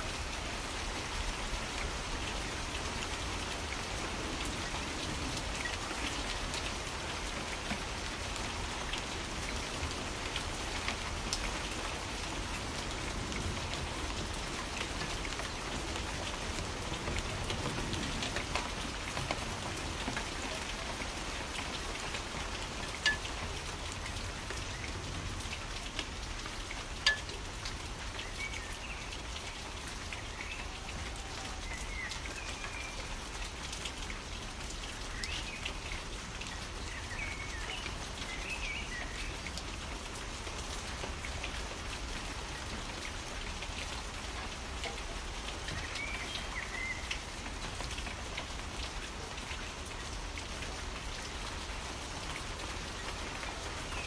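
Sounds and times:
steady rain falling: 0.0s - 54.0s
sharp water drop hits: 27.0s - 27.3s.

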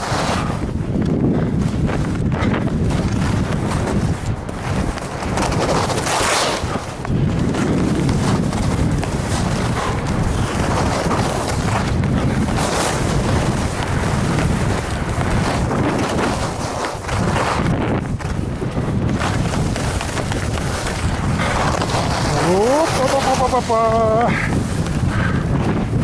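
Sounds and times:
skis hissing over snow: 0.0s - 0.6s, 5.4s - 6.9s, 7.6s - 18.4s, 19.1s - 25.0s
wind buffeting microphone: 0.0s - 26.0s.

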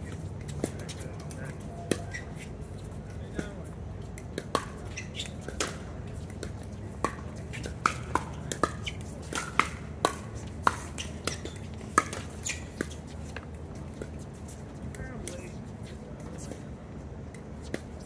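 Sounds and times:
paddles striking pickleball: 4.2s - 13.0s.

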